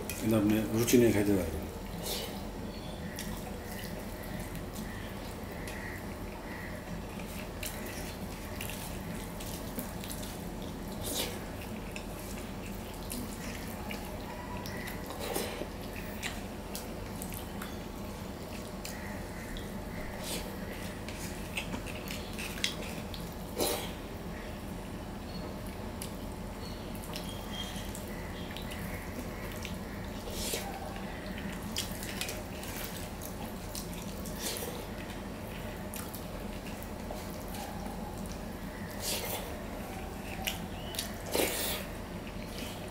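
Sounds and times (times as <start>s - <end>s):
steady low hum: 0.0s - 42.9s
chewing: 1.9s - 24.5s, 26.9s - 42.9s.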